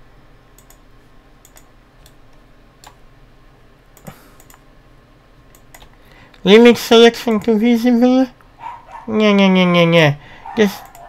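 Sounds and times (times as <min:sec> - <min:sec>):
computer mouse clicks: 0:00.5 - 0:03.0, 0:04.0 - 0:04.6, 0:05.5 - 0:06.4, 0:10.8 - 0:11.0
keyboard clicking: 0:00.6 - 0:00.8, 0:01.4 - 0:02.2, 0:04.0 - 0:04.6, 0:05.5 - 0:06.0, 0:10.8 - 0:11.0.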